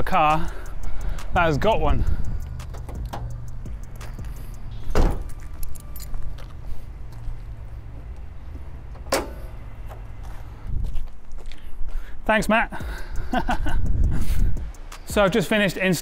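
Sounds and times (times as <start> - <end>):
small metallic clicks and rattles: 2.2 - 6.5
car door clunk: 2.7 - 3.3, 4.8 - 6.0, 8.8 - 10.0
car bonnet release clack: 9.0 - 10.0.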